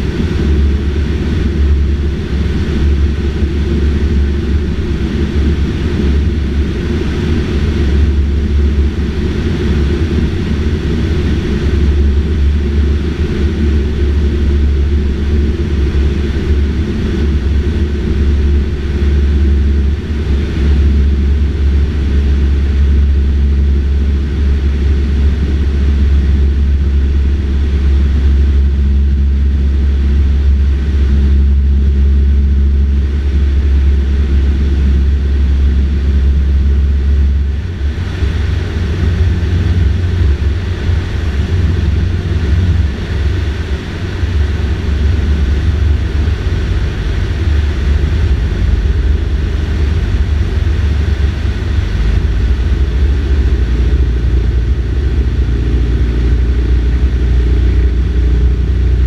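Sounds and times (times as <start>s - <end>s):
airplane engine droning: 0.0s - 59.0s.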